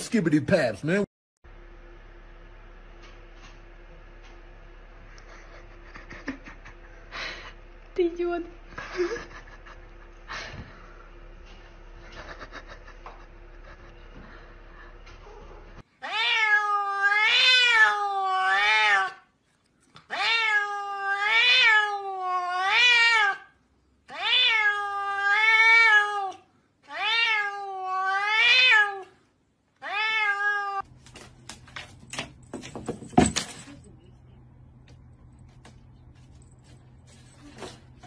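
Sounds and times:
cat meowing: 16.0 - 19.2, 20.1 - 23.5, 24.1 - 29.1, 29.8 - 30.9.

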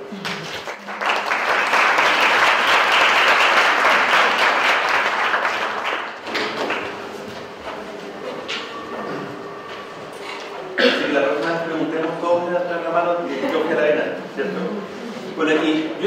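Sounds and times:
audience applauding: 0.2 - 7.0.

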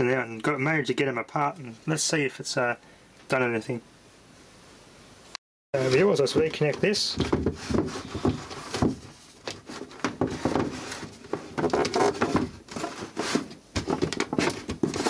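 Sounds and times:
power cords and plugs handled: 6.0 - 15.0.

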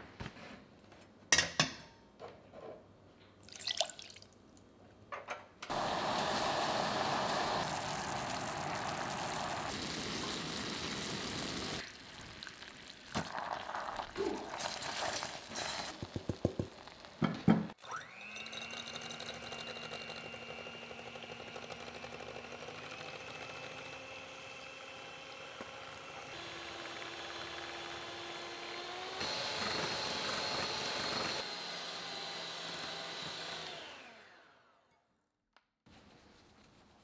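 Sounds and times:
electric hand mixer running: 5.7 - 11.8, 17.8 - 34.7.

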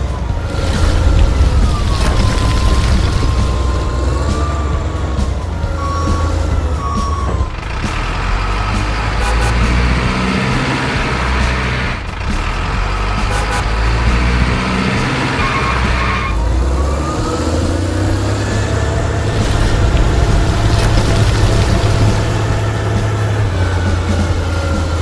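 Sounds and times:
truck engine running: 0.0 - 25.0
rising whine: 0.1 - 6.0, 18.4 - 25.0
short beeps: 9.2 - 9.6.

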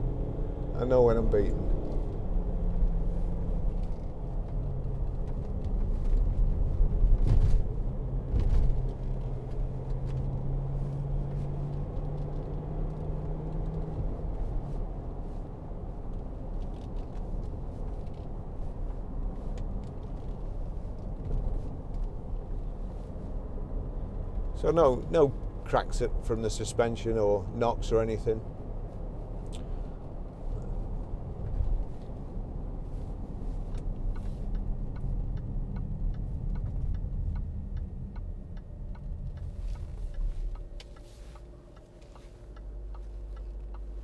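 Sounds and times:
car engine and road rumble: 0.0 - 44.0
suspension thumps: 1.7 - 14.9.

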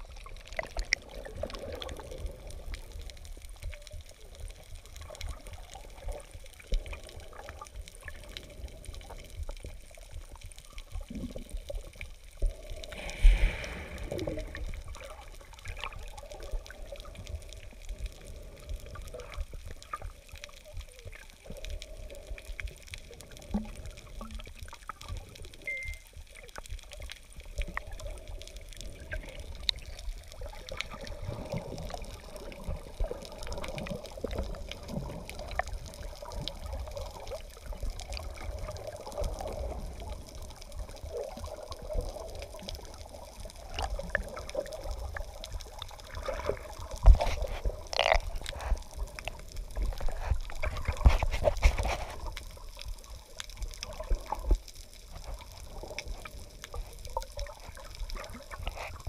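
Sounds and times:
muffled water rushing underwater: 0.0 - 59.0
low rumble: 12.5 - 15.2.

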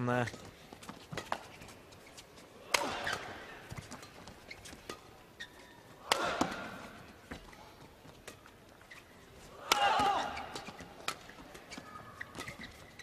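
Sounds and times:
racket hitting shuttlecock: 0.8 - 1.7, 2.6 - 7.5, 9.6 - 13.0.

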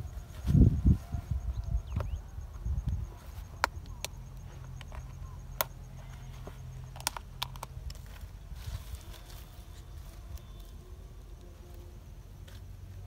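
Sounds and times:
plastic containers clicking: 6.8 - 8.0.

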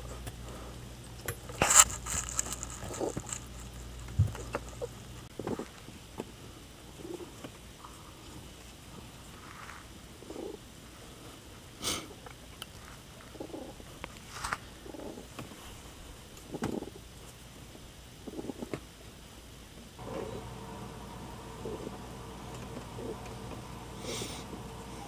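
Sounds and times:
cat purring: 6.9 - 8.0, 10.1 - 10.7, 13.2 - 13.9, 14.7 - 15.4, 18.2 - 18.8, 20.0 - 25.0.

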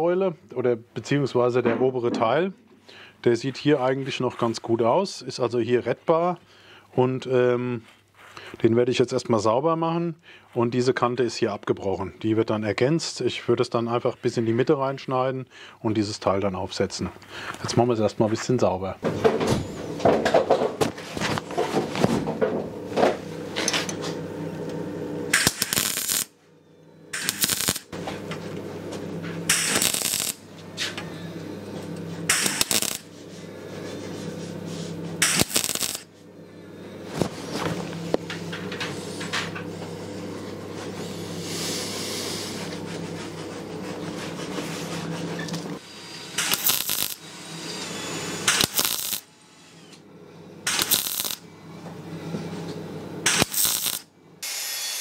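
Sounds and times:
electric rotary tool running: 27.1 - 33.1, 35.2 - 36.1, 45.5 - 50.0, 50.6 - 51.4, 53.3 - 55.0.

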